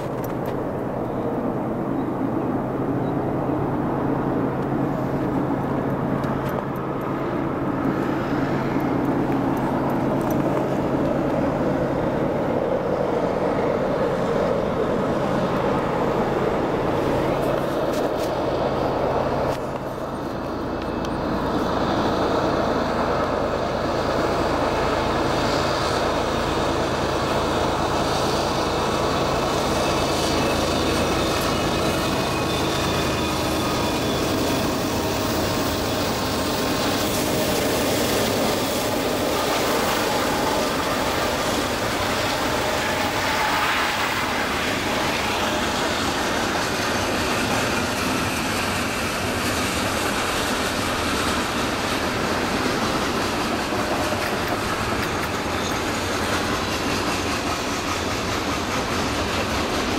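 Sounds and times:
train wheels clacking over rail joints: 0.0s - 0.9s, 16.6s - 59.9s
diesel locomotive engines: 0.0s - 59.9s
train wheels squealing: 20.0s - 59.9s.

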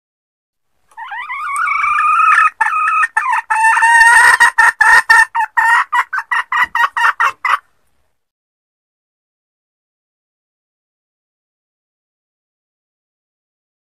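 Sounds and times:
hen cackling: 0.9s - 7.7s.

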